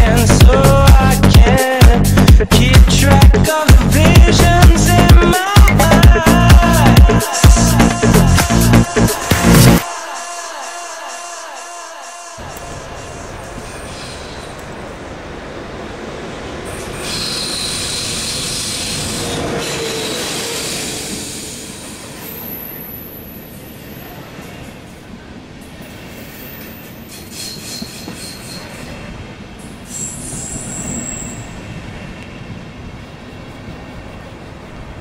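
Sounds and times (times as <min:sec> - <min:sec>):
train rolling past: 0:12.4 - 0:35.0
wheel squeal: 0:16.7 - 0:23.4, 0:26.2 - 0:29.0, 0:29.8 - 0:31.8.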